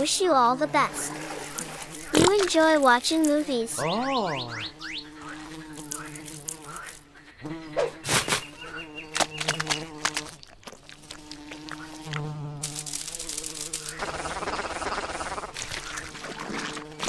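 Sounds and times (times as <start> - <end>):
dry crackling hiss: 0.0 - 3.8, 5.0 - 7.4, 8.0 - 15.9
flies buzzing: 0.0 - 17.0
sharp clicks: 9.1 - 10.4.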